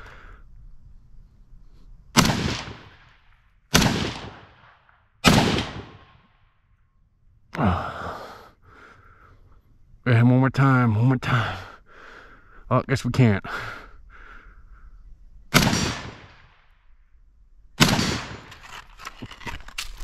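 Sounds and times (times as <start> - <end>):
rifle shots: 2.2 - 6.4, 15.5 - 16.7, 17.8 - 18.8
breathy sigh: 7.5 - 9.3.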